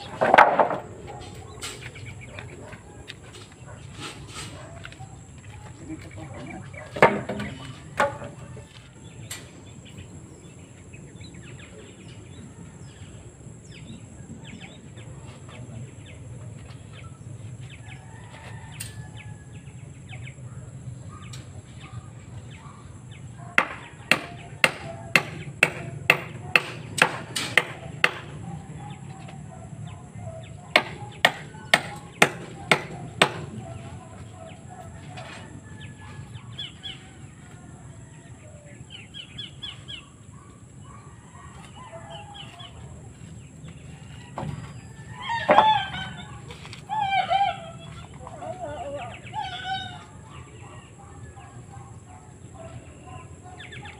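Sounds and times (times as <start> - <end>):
birds chirping faintly: 0.0 - 27.0, 27.6 - 53.9
hammer driving nails: 23.6 - 28.3.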